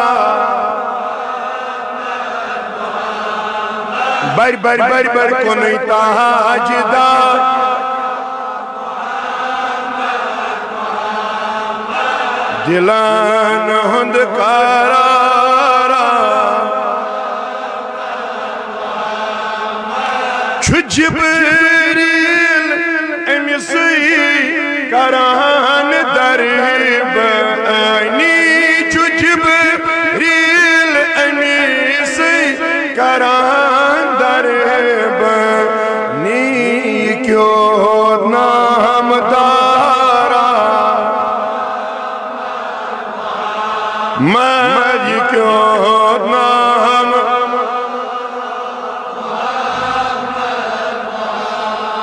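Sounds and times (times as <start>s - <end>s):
man singing a long held note: 0.0s - 1.0s, 4.0s - 8.5s, 20.4s - 41.7s, 44.2s - 48.7s
man chanting: 0.0s - 2.0s, 4.0s - 9.8s, 12.0s - 17.4s, 20.0s - 42.3s, 43.9s - 51.6s.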